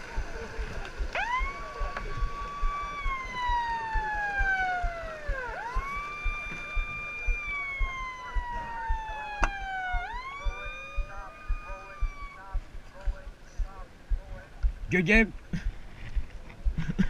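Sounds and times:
siren winding up and down: 0.0 - 12.6
low thumps: 0.0 - 17.0.

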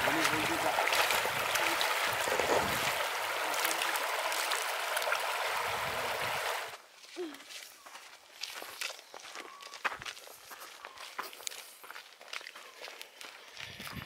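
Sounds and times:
river flowing over stones: 0.0 - 6.8.

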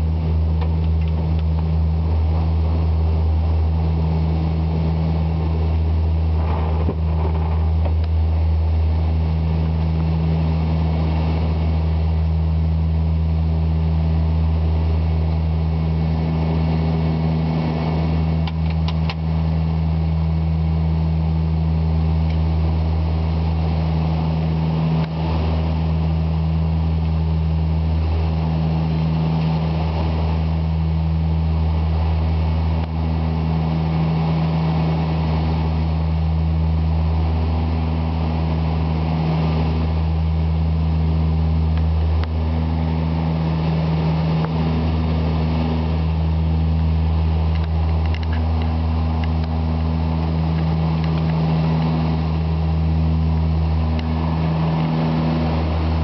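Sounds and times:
turboprop engines droning: 0.0 - 56.0.

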